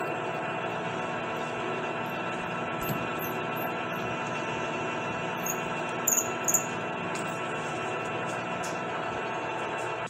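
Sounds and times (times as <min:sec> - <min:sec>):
metal lathe humming: 0:00.0 - 0:09.8
high squeaks: 0:05.4 - 0:06.8.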